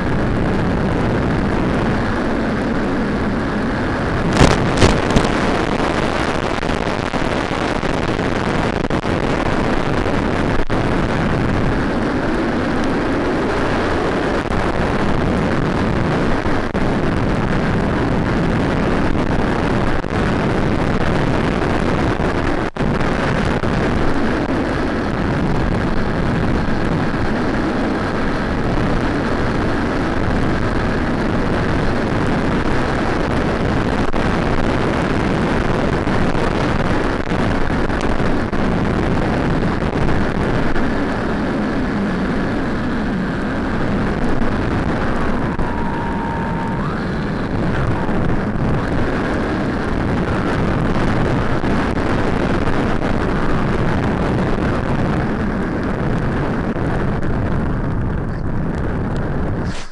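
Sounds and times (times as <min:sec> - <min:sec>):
loud rushing noise: 0:00.0 - 0:19.4, 0:42.1 - 0:55.8, 0:59.5 - 0:59.9.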